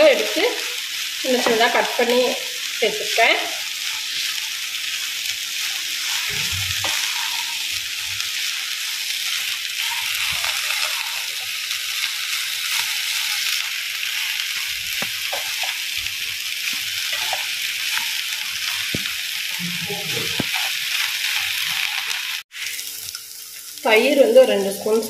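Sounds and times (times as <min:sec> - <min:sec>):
okra sizzling in hot oil: 0:00.0 - 0:25.0
spatula scraping a pan: 0:03.2 - 0:22.2.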